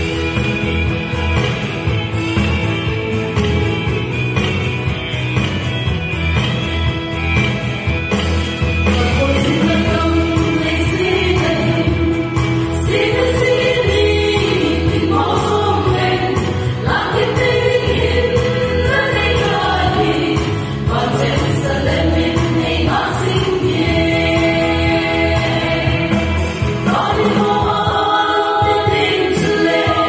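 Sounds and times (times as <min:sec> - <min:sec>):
instrumental accompaniment with bass: 0:00.0 - 0:30.0
women singing in harmony: 0:09.0 - 0:30.0.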